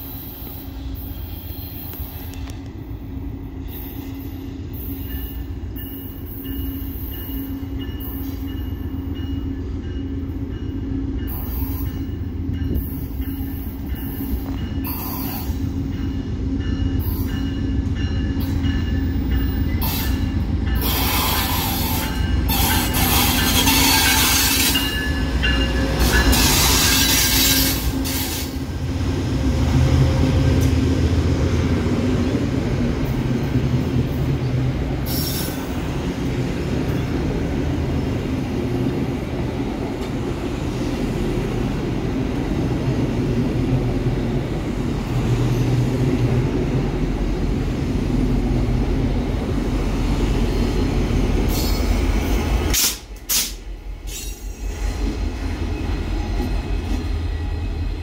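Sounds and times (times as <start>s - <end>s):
diesel train rumbling past: 0.0s - 58.0s.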